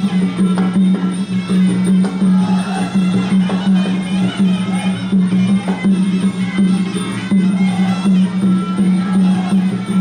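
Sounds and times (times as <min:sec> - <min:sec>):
drum strokes: 0:00.0 - 0:10.0.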